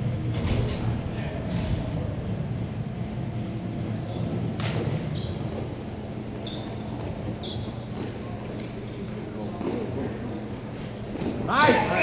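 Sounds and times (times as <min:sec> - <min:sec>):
steady low hum: 0:00.0 - 0:12.0
short high squeaks: 0:05.1 - 0:05.5, 0:06.4 - 0:07.9.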